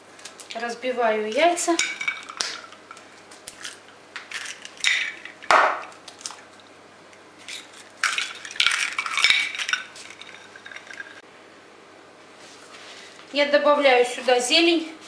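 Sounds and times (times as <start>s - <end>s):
eggs cracking: 1.8s - 11.2s
eggshells clinking on china plate: 7.5s - 11.2s.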